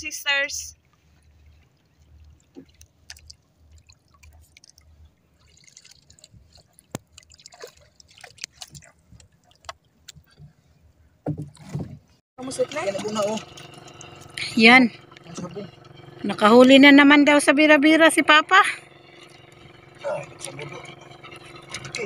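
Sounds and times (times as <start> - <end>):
small splashes and drips: 0.8 - 10.4, 12.6 - 14.4, 19.0 - 19.9
paddle stirring water: 0.8 - 17.0, 18.7 - 22.0.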